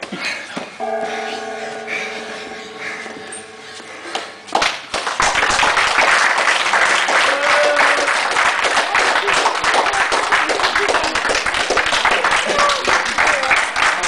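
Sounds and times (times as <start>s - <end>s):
spectators applauding: 4.1s - 14.0s.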